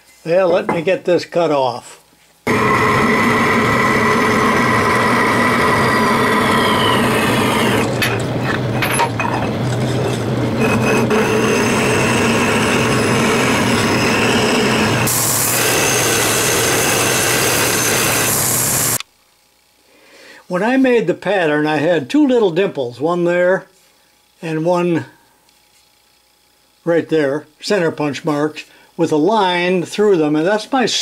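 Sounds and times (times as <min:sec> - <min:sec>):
bandsaw cutting metal: 0:02.5 - 0:19.0
belt sander grinding metal: 0:02.5 - 0:19.0.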